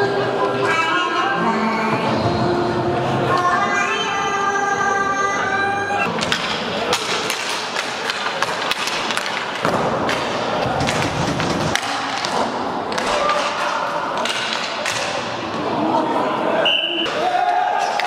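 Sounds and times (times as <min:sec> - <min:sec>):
voices of players and spectators: 0:00.0 - 0:18.0
hockey sticks and puck clacking: 0:06.1 - 0:15.7, 0:17.0 - 0:18.0.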